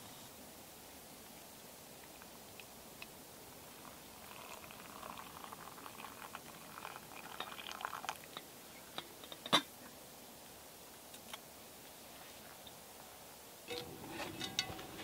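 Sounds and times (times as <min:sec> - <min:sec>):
water pouring into a mug: 0:03.6 - 0:08.4
metallic clink of kettle: 0:13.7 - 0:15.0.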